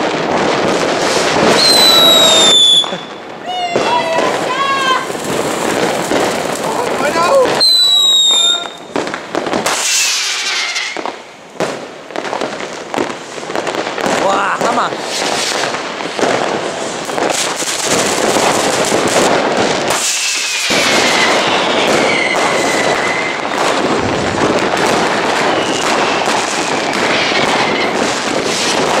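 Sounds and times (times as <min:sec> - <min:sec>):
fireworks crackling and banging: 0:00.0 - 0:29.0
falling firework whistle: 0:01.1 - 0:06.4, 0:07.0 - 0:11.2, 0:19.9 - 0:29.0.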